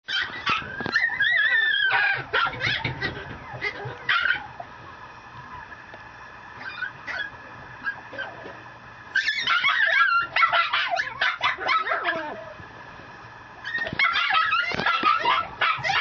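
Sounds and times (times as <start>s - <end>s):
puppy yipping: 0.1s - 4.6s, 6.6s - 8.4s, 9.1s - 12.5s, 13.6s - 16.0s
puppy whining: 0.1s - 5.8s, 6.6s - 12.6s, 13.6s - 16.0s.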